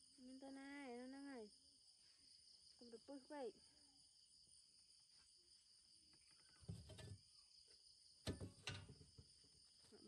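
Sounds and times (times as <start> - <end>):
night insects chorus: 0.0 - 10.0
soft knocks and rustles: 6.5 - 7.3.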